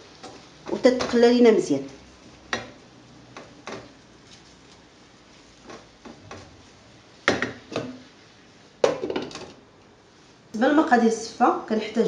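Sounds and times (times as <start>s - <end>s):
onions stirred in frying pan: 0.0s - 12.0s
wooden spoon knocking pan: 7.2s - 8.0s.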